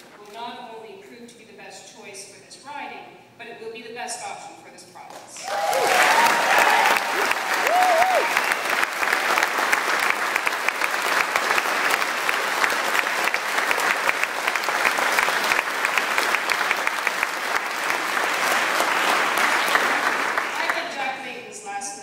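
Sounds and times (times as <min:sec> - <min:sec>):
person whooping: 0:05.4 - 0:08.5
audience applauding and cheering: 0:05.4 - 0:20.8.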